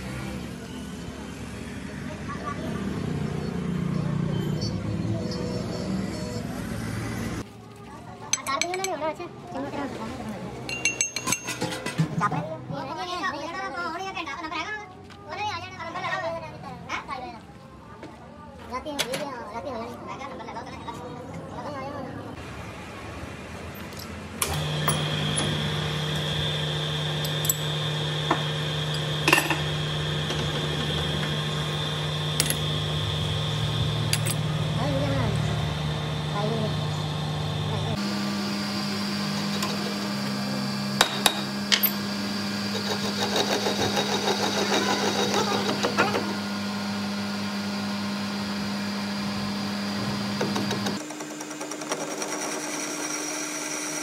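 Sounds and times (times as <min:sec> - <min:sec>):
sharp metallic clinks: 0:10.7 - 0:11.7
lathe motor humming and whining: 0:24.4 - 0:54.0.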